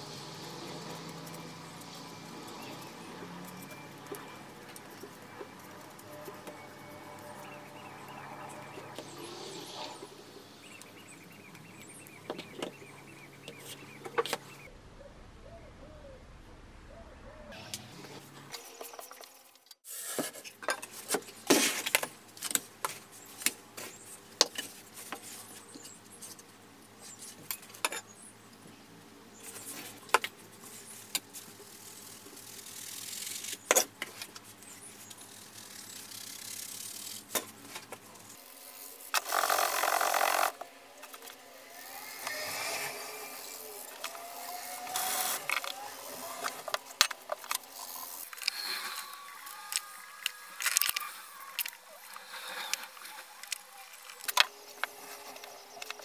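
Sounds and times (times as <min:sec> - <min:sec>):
sand grains hissing: 0:00.0 - 0:03.4, 0:07.4 - 0:11.2, 0:34.8 - 0:40.4.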